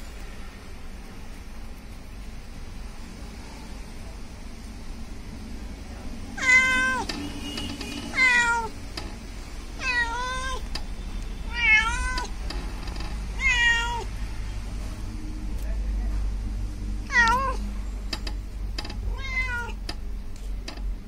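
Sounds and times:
cat meowing: 0:06.4 - 0:07.1, 0:08.1 - 0:08.8, 0:09.8 - 0:10.7, 0:11.5 - 0:12.4, 0:13.4 - 0:14.1, 0:17.1 - 0:17.7, 0:19.0 - 0:19.8.

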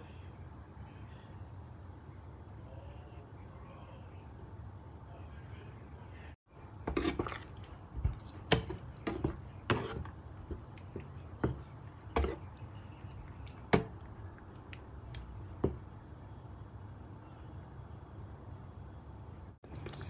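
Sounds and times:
thick sauce squishing: 0:06.6 - 0:16.1
spatula knocking and scraping pan: 0:06.8 - 0:12.6, 0:13.5 - 0:14.1.

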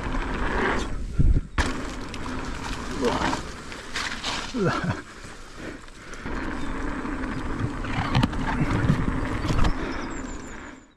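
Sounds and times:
bike tyre and wind noise: 0:00.0 - 0:10.9
bike knocking and rattling: 0:01.5 - 0:10.0.

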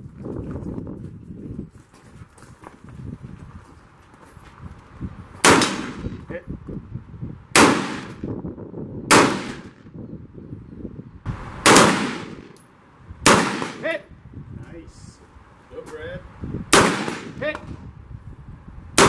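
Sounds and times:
rifle shots with echo: 0:05.4 - 0:06.2, 0:07.6 - 0:08.2, 0:09.1 - 0:09.8, 0:11.6 - 0:12.6, 0:13.2 - 0:14.0, 0:16.7 - 0:17.4.

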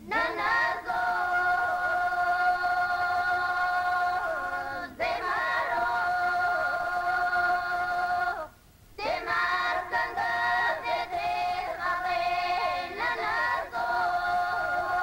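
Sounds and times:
song with singing voices: 0:00.0 - 0:15.0.

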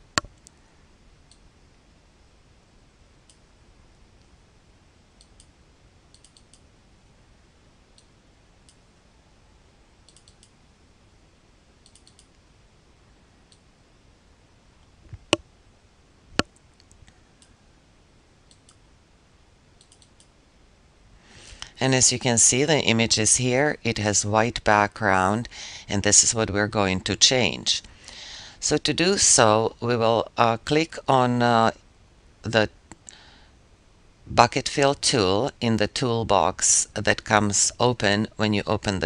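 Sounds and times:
low hiss: 0:00.0 - 0:39.0
computer mouse clicking: 0:06.1 - 0:06.6, 0:10.1 - 0:10.6, 0:11.8 - 0:12.4, 0:18.5 - 0:18.8, 0:19.8 - 0:20.3.

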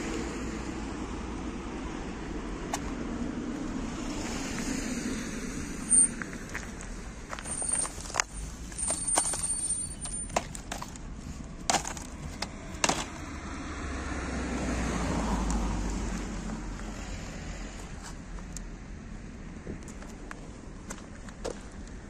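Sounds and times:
car passing: 0:00.0 - 0:10.2, 0:11.2 - 0:18.0
plastic cases clacking: 0:07.4 - 0:13.2.

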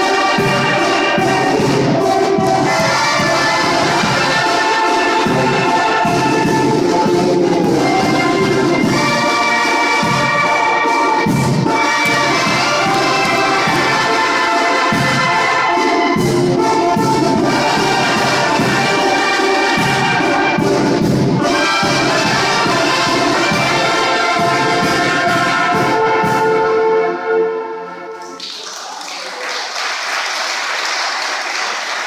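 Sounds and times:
brass band playing: 0:00.0 - 0:28.4
people clapping: 0:12.1 - 0:14.2, 0:28.2 - 0:32.0.

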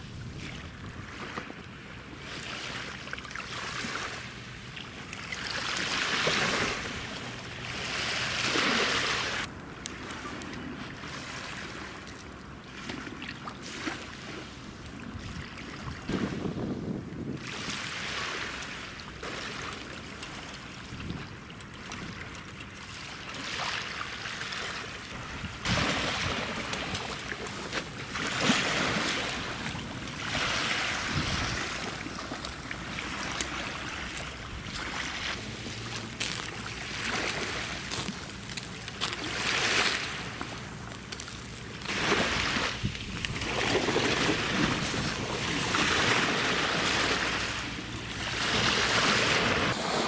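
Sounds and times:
wind rumbling on microphone: 0:00.0 - 0:01.6, 0:15.0 - 0:17.9, 0:20.8 - 0:22.4, 0:25.1 - 0:36.7, 0:40.2 - 0:50.0.

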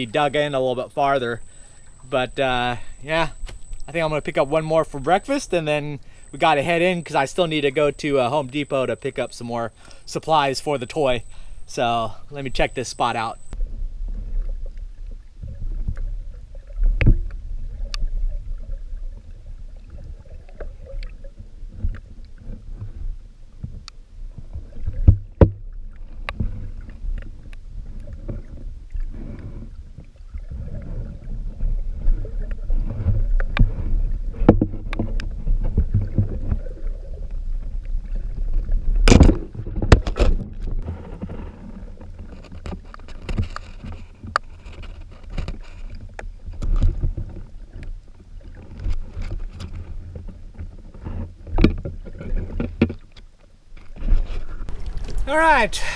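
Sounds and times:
low underwater rumble: 0:13.3 - 0:42.4, 0:54.0 - 0:55.9
underwater clicks and knocks: 0:23.6 - 0:55.3.

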